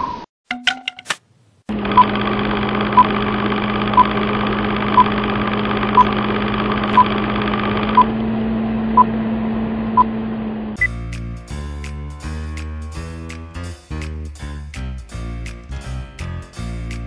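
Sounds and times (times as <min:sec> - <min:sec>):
film projector whirring: 0:01.7 - 0:10.0.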